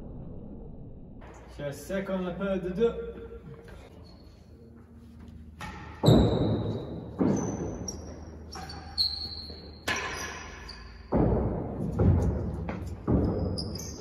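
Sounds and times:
ball bouncing off floor and walls: 5.6 - 14.0.

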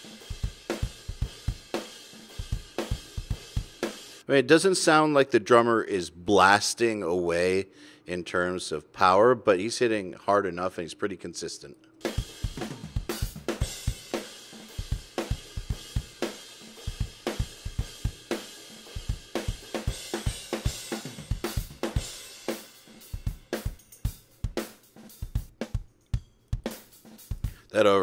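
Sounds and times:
cymbals: 0.0 - 4.2, 12.0 - 27.7
drum kit playing: 0.0 - 4.2, 12.0 - 27.7.

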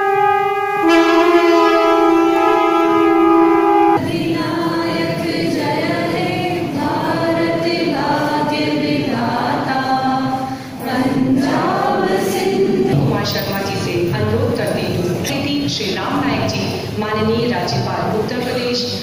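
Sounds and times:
horn-like blast: 0.0 - 4.0
group of voices singing: 0.0 - 13.0.

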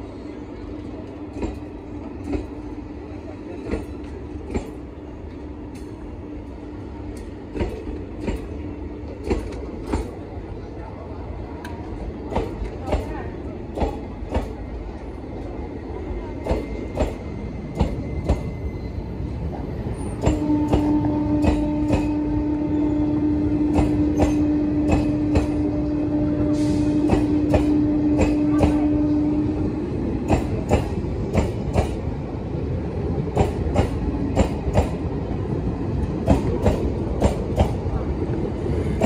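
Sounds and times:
train rumble: 0.0 - 39.0
train wheels clicking over rail joints: 3.6 - 6.1, 7.1 - 10.2, 11.7 - 14.8, 16.4 - 18.5, 20.1 - 22.2, 23.6 - 25.7, 26.6 - 28.8, 30.2 - 32.0, 33.2 - 35.1, 36.0 - 37.8.

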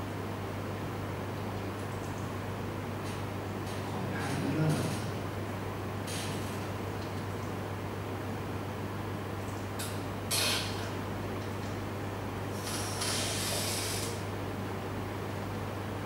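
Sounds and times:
steady low hum: 0.0 - 16.0
hiss: 12.6 - 14.2.

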